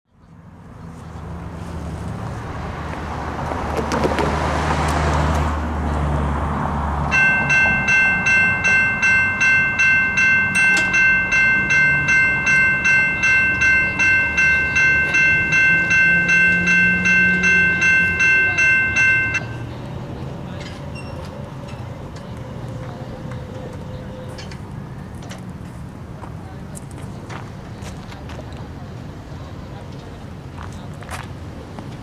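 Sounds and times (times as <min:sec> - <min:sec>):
railroad crossing bell ringing: 0:07.1 - 0:24.6.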